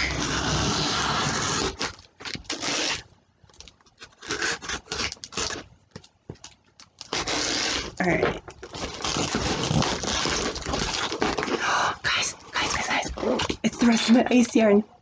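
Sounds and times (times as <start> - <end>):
package wrapping torn and rustled: 0.0 - 11.9.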